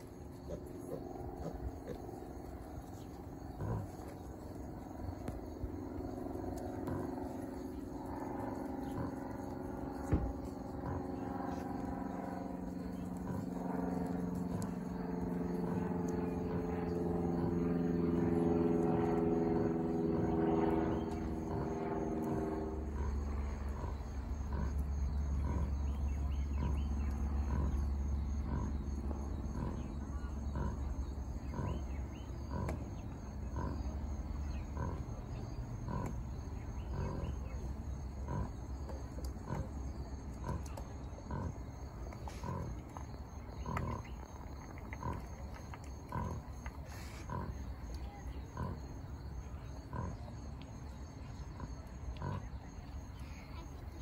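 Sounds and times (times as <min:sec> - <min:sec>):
pigs grunting: 0:00.0 - 0:16.7, 0:20.9 - 0:50.5, 0:51.3 - 0:54.0
steady droning hum: 0:00.0 - 0:54.0.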